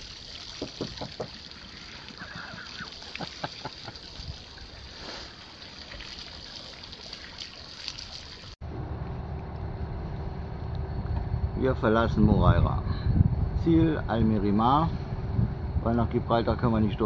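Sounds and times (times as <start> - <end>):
hose water splashing on concrete: 0.0 - 8.6
low steady hum: 8.6 - 17.0.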